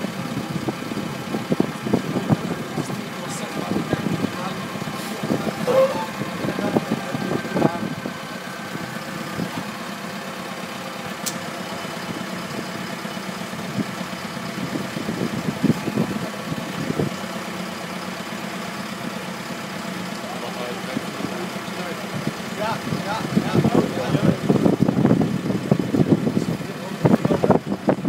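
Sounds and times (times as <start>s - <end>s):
truck engine idling: 0.0s - 28.0s
sharp click: 11.2s - 11.4s.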